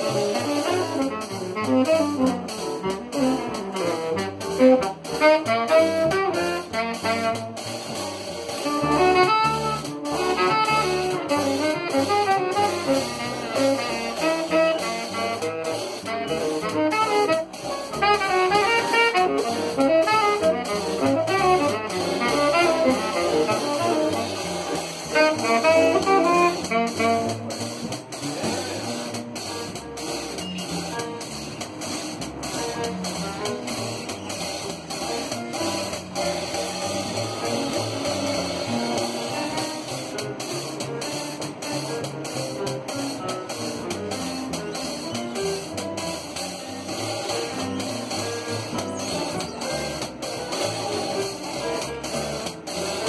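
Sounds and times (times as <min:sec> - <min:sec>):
drum kit: 0:00.0 - 0:53.0
saxophone melody: 0:00.0 - 0:53.0
upright bass: 0:00.0 - 0:53.0
keyboard: 0:00.1 - 0:53.0.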